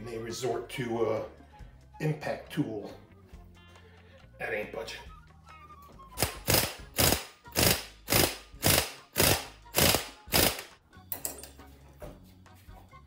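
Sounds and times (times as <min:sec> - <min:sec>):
impact wrench hammering: 0:06.2 - 0:10.7.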